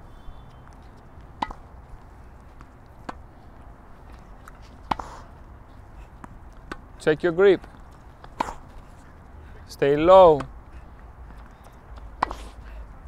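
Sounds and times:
tennis balls hit with racquets: 1.3s - 1.8s, 2.5s - 3.7s, 4.4s - 5.4s, 6.2s - 6.9s, 7.6s - 8.8s, 10.2s - 10.6s, 11.4s - 12.7s.

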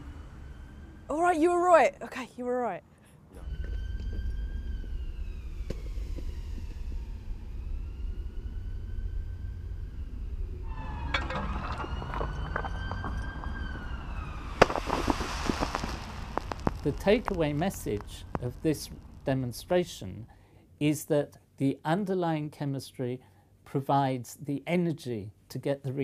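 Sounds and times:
siren rising and falling: 0.0s - 1.5s, 3.3s - 19.8s
wind rumble on microphone: 9.9s - 19.8s
sharp crack: 10.9s - 20.1s
foam hissing and crackling: 14.4s - 20.1s.

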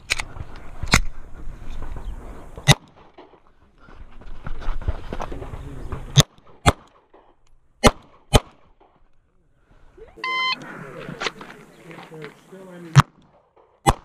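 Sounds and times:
pistol shots: 6.1s - 8.9s, 12.9s - 14.0s.

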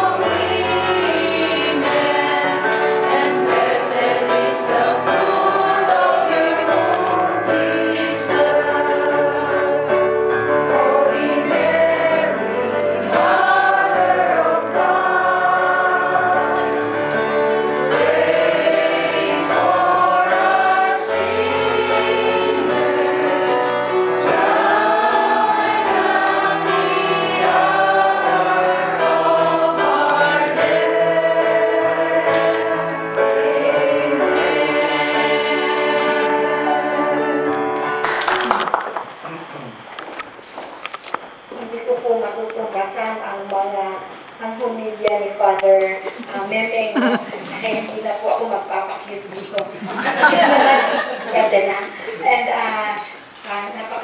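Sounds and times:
choir singing a slow hymn: 0.0s - 38.0s, 49.8s - 52.3s
keyboard accompaniment: 0.0s - 40.4s.

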